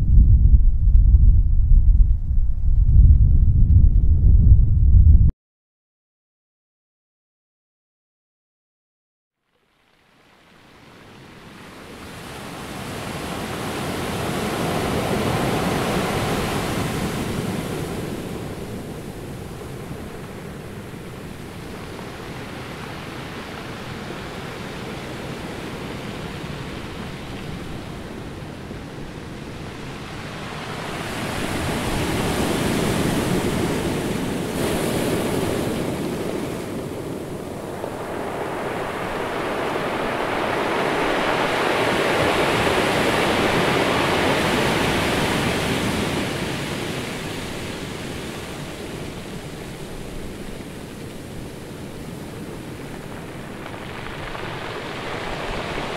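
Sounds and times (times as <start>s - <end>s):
ocean waves washing: 10.4s - 55.9s.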